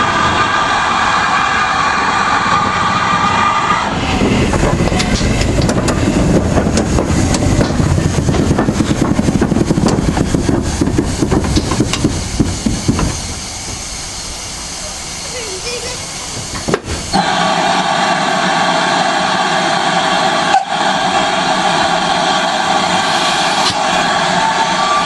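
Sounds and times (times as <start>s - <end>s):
steam locomotive rumble: 0.0s - 25.0s
wheels clanking on rails: 4.2s - 17.4s.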